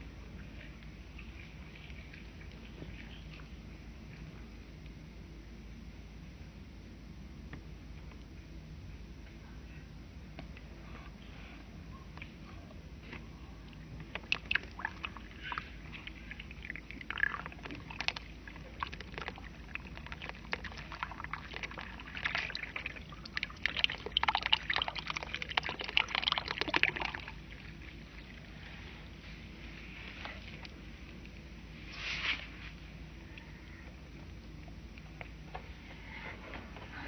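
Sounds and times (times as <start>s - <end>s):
soil crackling and popping: 14.0s - 28.5s
water pouring into soil: 14.2s - 28.5s.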